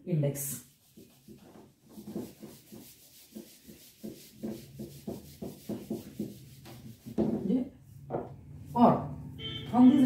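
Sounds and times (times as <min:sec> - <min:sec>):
pen scratching handwriting: 0:00.8 - 0:07.4.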